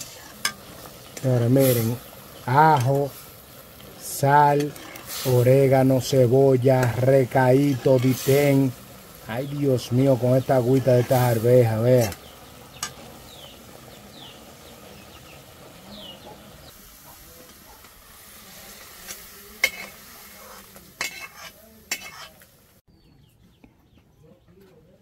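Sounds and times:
food sizzling in pot: 0.0 - 22.9.

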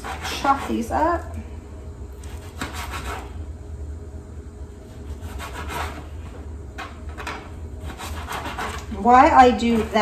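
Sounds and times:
knife slicing on cutting board: 2.3 - 3.3, 7.8 - 8.9.

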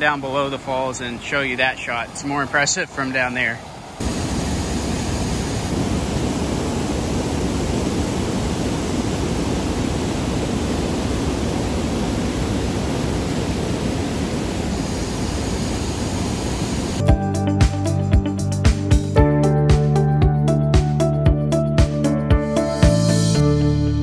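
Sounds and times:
waterfall roaring: 0.0 - 17.0.

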